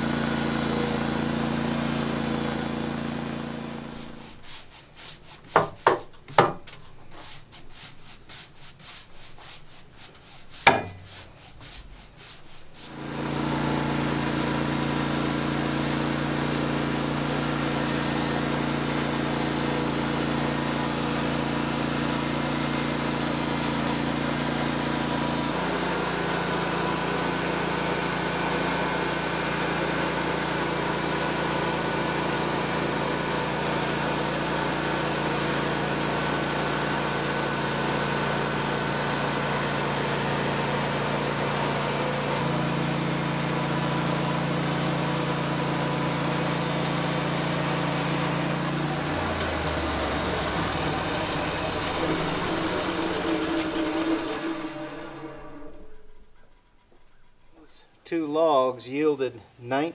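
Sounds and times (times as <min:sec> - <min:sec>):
band sawmill cutting a log: 0:00.0 - 0:57.8
knocks and brushing on wood: 0:03.0 - 0:15.4, 0:48.7 - 0:57.8.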